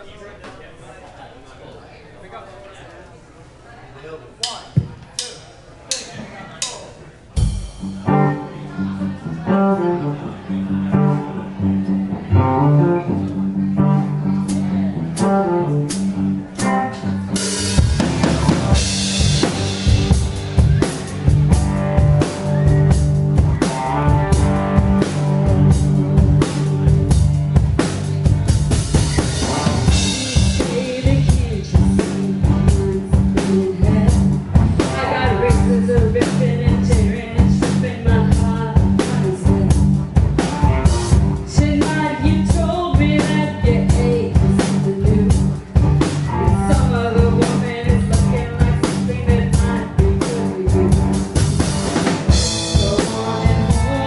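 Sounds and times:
live rock band playing: 7.4 - 54.0
woman singing: 30.0 - 34.3, 34.9 - 39.8, 41.5 - 45.4, 46.5 - 51.2, 52.4 - 54.0.

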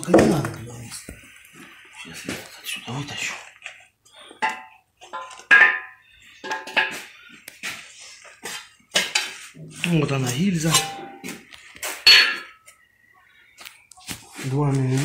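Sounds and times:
ringing metal clanks and knocks: 10.7 - 11.3, 12.0 - 12.6.

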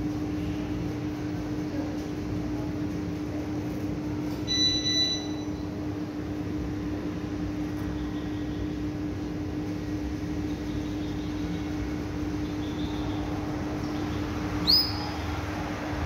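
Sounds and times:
canary whistled note: 14.6 - 15.0.

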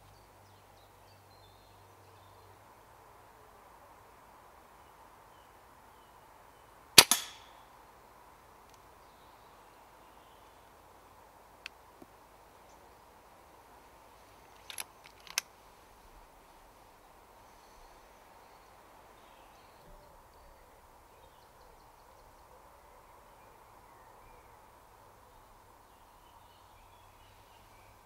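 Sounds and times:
air rifle shot: 7.0 - 7.5.

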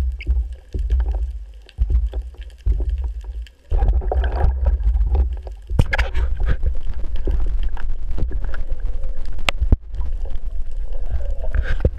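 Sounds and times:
underwater rumble of moving water: 0.0 - 11.9.

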